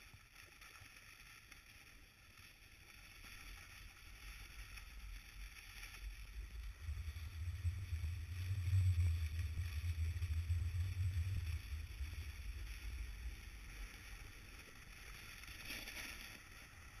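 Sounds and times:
wind buffeting microphone: 6.4s - 13.4s.

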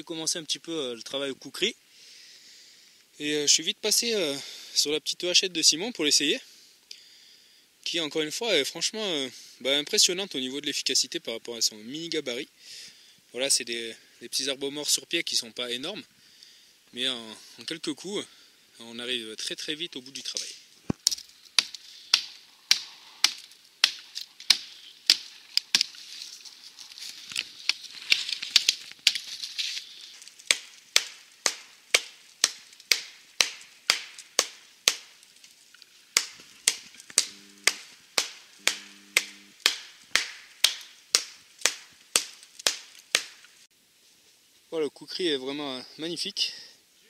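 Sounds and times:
hand blade chopping dry wood: 20.9s - 26.0s, 27.3s - 29.8s, 30.5s - 35.2s, 36.1s - 43.4s.

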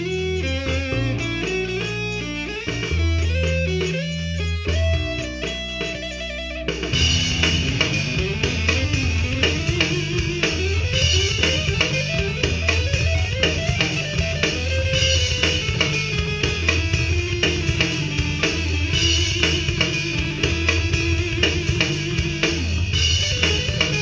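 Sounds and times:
bass and drums: 0.0s - 24.0s
electric guitar lead lines: 0.0s - 24.0s.

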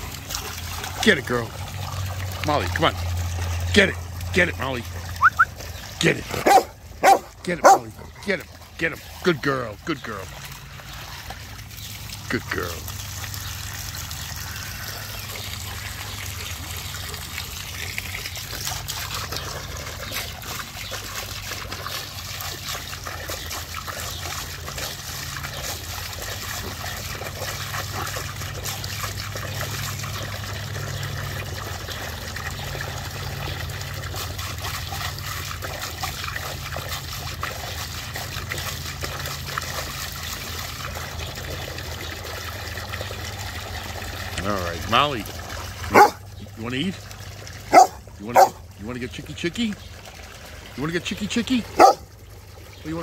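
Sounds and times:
hose jet pouring into water: 0.0s - 7.5s
dog splashing at water: 0.0s - 53.0s.

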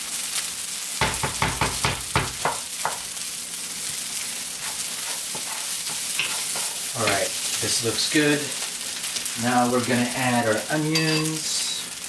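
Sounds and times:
food sizzling in frying pan: 0.0s - 12.0s
wooden spoon scraping pan: 4.2s - 7.4s.

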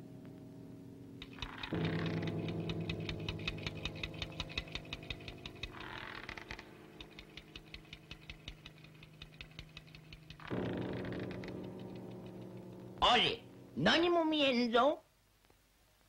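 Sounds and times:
rapid even ticking: 1.2s - 13.8s.

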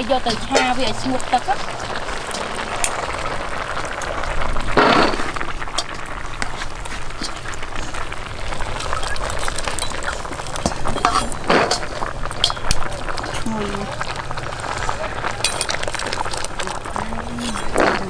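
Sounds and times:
sieve and ladle clinking on pots: 0.0s - 3.4s, 9.7s - 13.4s.

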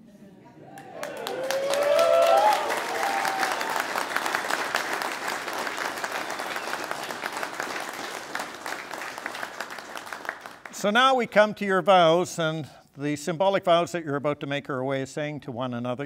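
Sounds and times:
people applauding: 0.7s - 11.0s.

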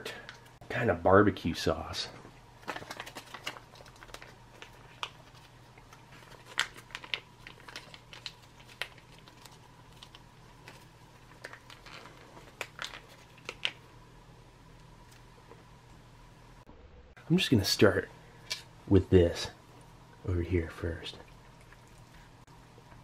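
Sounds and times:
foil pouch crinkling: 2.6s - 13.9s.

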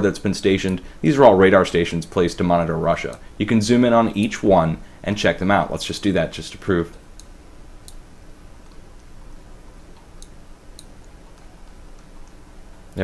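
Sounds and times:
low steady background hum: 0.0s - 13.0s
computer mouse clicks: 6.9s - 8.0s, 8.6s - 9.1s, 9.8s - 13.0s.

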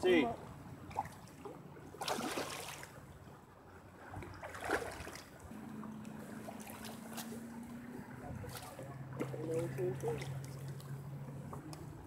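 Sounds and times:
fish thrashing and splashing in water: 0.8s - 3.1s, 4.0s - 7.8s, 8.4s - 11.1s.

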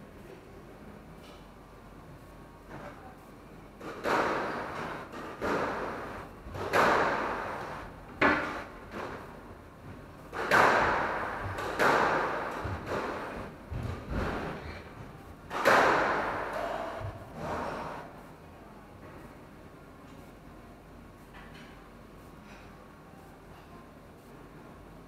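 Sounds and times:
squash ball hits echoing: 10.4s - 13.2s, 15.5s - 16.7s.

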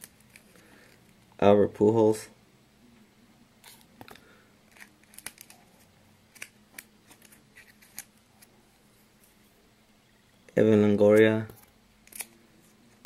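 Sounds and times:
faint low hum: 0.0s - 13.0s
trading cards clicking and rustling: 3.6s - 8.5s, 11.1s - 12.4s.

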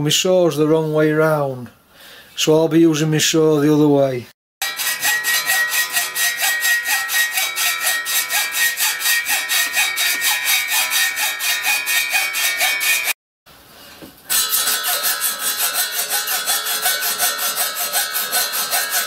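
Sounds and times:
hacksaw cutting metal: 4.6s - 13.2s, 14.3s - 19.0s.

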